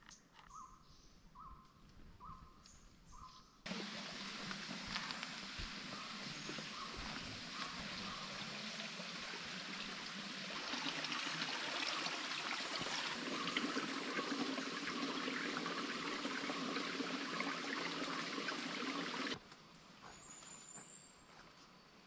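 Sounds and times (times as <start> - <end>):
running water: 3.7 - 19.4.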